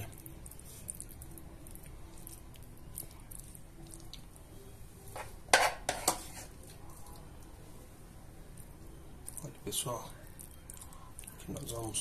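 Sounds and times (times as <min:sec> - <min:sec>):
spatula squishing filling: 0:00.0 - 0:04.5, 0:09.2 - 0:12.0
spatula scraping glass dish: 0:05.6 - 0:06.5.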